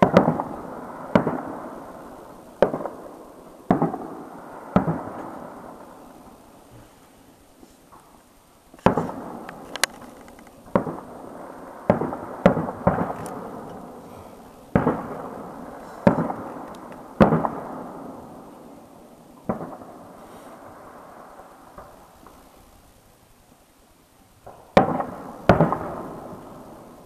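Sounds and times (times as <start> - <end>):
firework bangs with echo: 0.0 - 5.9, 8.8 - 9.6, 10.6 - 13.9, 14.7 - 18.6, 19.4 - 20.9, 24.4 - 27.0.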